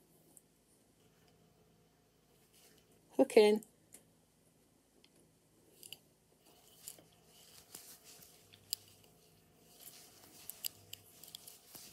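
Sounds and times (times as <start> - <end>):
yarn rasping through stitches: 6.5 - 11.9
small metal clicks: 9.7 - 11.9.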